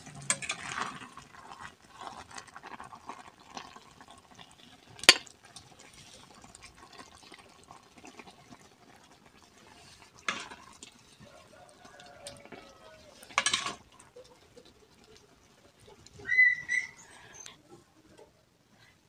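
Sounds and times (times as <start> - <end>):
tongs scraping metal pot: 0.0 - 3.8, 9.4 - 17.6.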